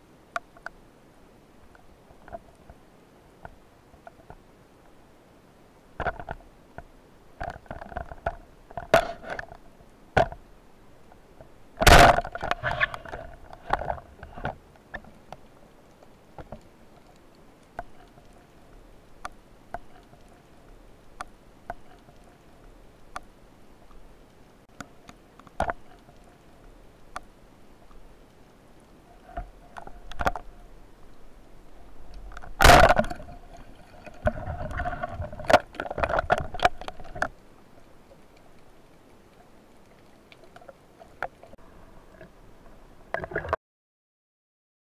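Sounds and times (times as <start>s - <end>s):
muffled underwater knocks and clicks: 6.0s - 10.4s, 11.4s - 23.3s, 24.7s - 26.4s, 29.2s - 31.2s, 32.1s - 37.4s, 43.1s - 43.6s.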